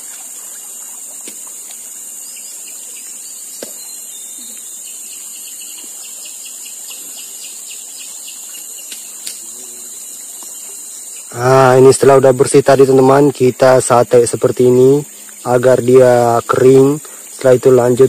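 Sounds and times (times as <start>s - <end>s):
forest insects droning: 0.0s - 18.0s
faint clicks: 8.8s - 9.4s.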